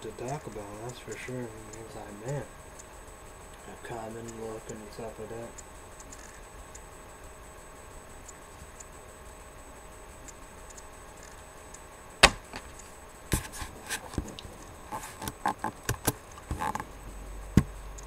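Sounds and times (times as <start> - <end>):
faint steady hum: 0.0 - 18.0
sharp knock: 12.2 - 12.7.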